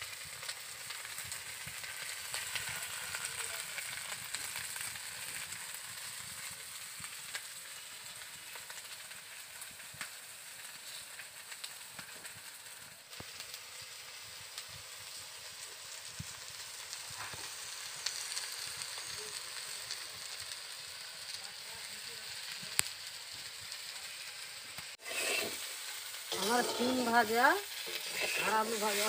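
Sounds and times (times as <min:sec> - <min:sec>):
food sizzling in oil: 0:00.0 - 0:29.0
small crackles: 0:00.0 - 0:29.0.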